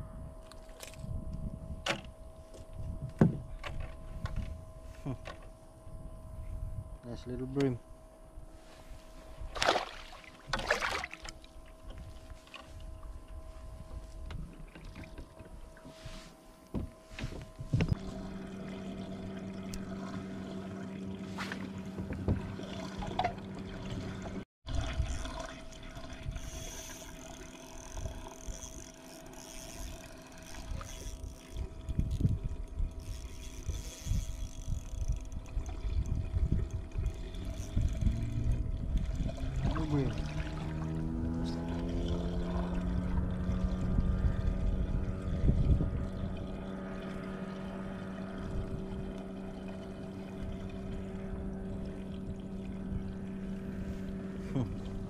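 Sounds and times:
wind rumbling on microphone: 0.0s - 9.7s, 11.4s - 20.2s, 21.2s - 55.0s
steady low hum: 0.0s - 55.0s
water lapping against kayak hull: 9.4s - 13.2s, 16.6s - 55.0s
fishing reel winding: 26.3s - 38.5s.

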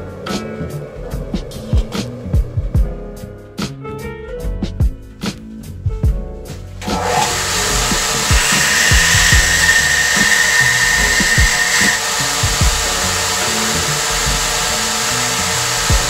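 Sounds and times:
background music with low beat: 0.0s - 16.0s
belt sander grinding metal: 6.8s - 16.0s.

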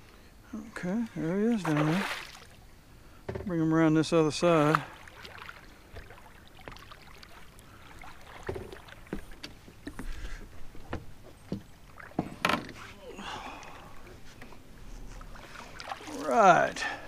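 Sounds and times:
fish splashing: 4.7s - 9.4s, 15.2s - 17.0s.

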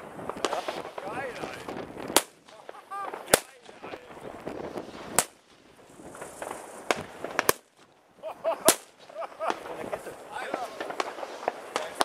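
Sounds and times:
distant fireworks: 0.0s - 12.0s
firecracker bangs: 0.0s - 12.0s.

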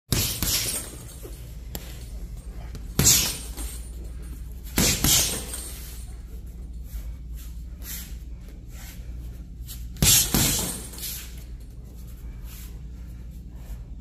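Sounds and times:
punches thudding into heavy bag: 0.1s - 0.9s, 4.7s - 5.6s, 10.0s - 11.0s.

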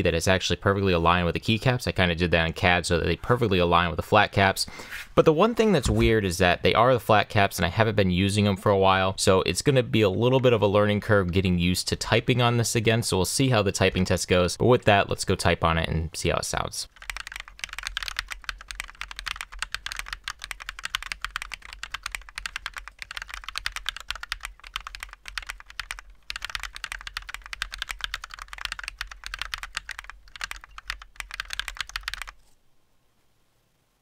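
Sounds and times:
mechanical keyboard typing: 16.9s - 32.4s.

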